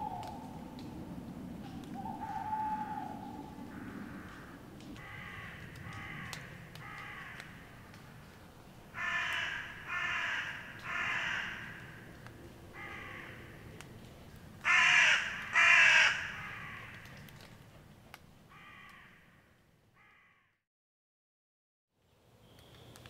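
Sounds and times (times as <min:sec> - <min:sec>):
crow cawing: 0:02.0 - 0:07.6, 0:08.9 - 0:12.1, 0:12.7 - 0:13.6, 0:14.6 - 0:17.2, 0:18.5 - 0:20.6.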